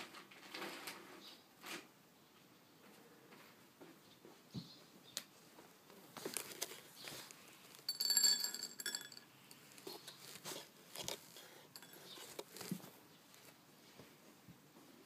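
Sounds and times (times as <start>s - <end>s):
kibble clinking on ceramic plate: 7.8s - 9.3s, 11.8s - 12.6s.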